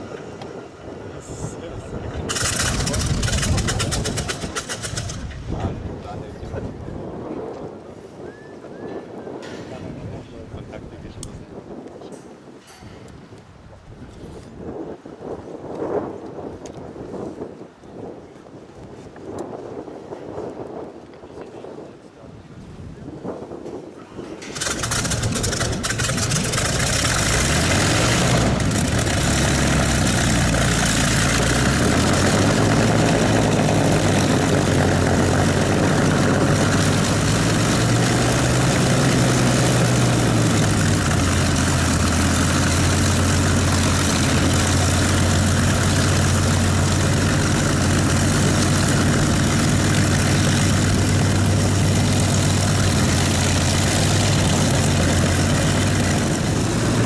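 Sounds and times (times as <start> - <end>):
propeller aircraft engine starting: 1.6 - 6.3, 24.2 - 57.0
aircraft engine idling: 2.0 - 5.4, 24.4 - 57.0.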